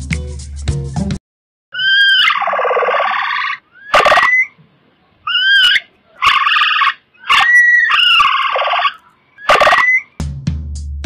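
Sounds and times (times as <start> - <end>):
coypu calling: 1.7 - 4.6, 5.2 - 10.2.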